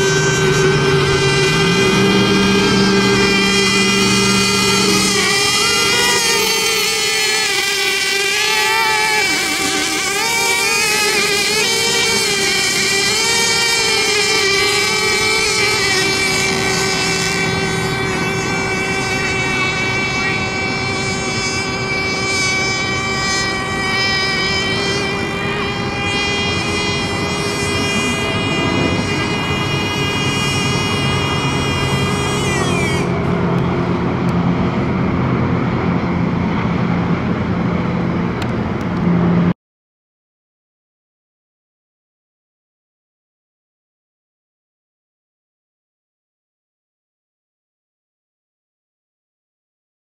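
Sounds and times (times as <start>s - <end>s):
high-pitched motor whine: 0.0s - 39.6s.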